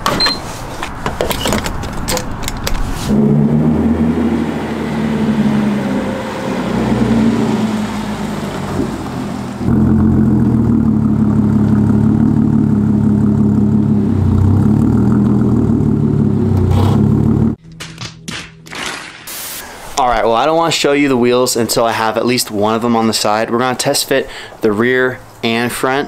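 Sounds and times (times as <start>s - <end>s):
car engine running: 3.0s - 17.6s.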